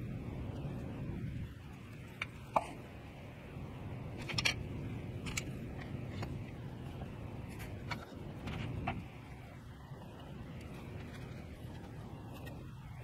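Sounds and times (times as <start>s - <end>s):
low steady rumble: 0.0s - 13.0s.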